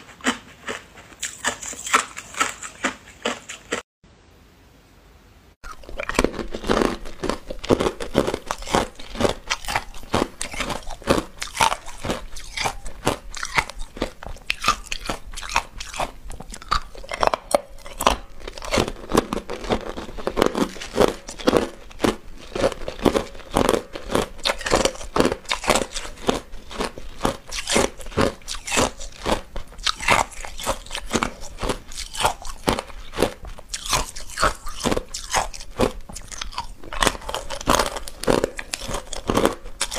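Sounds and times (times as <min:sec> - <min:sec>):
chewing ice crunching: 0:00.0 - 0:03.8, 0:05.6 - 0:39.9.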